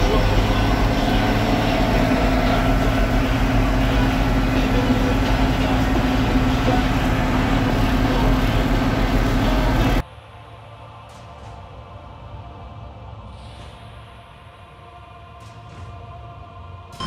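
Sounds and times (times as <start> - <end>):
tractor engine running: 0.0 - 10.0
tyre and road noise: 0.0 - 10.0.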